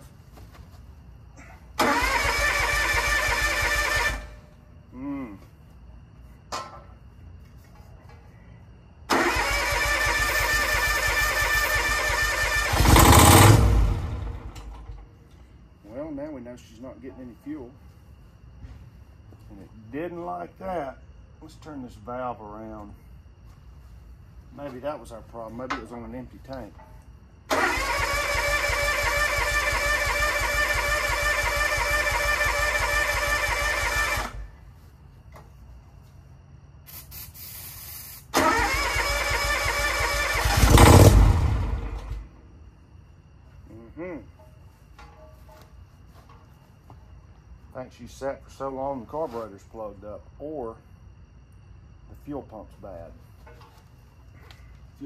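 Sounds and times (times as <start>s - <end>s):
starter cranking engine: 1.8s - 4.3s, 9.1s - 14.6s, 27.5s - 34.4s, 38.4s - 42.2s
engine firing loudly: 9.2s - 14.5s, 38.4s - 42.2s.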